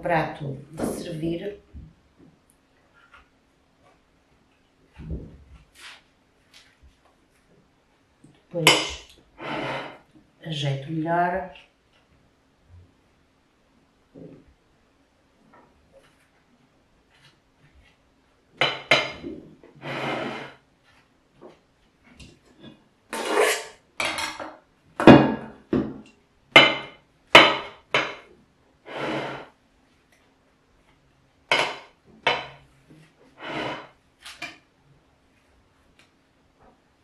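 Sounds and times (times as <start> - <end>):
metal spatula scraping ceramic plate: 8.7 - 10.0, 18.6 - 20.6, 23.1 - 24.4, 26.6 - 28.2, 28.9 - 29.5, 31.5 - 32.6, 33.4 - 34.6.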